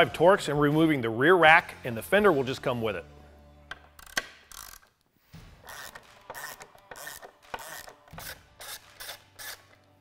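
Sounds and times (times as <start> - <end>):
ratchet wrench rasping: 3.8 - 4.9, 5.6 - 9.8.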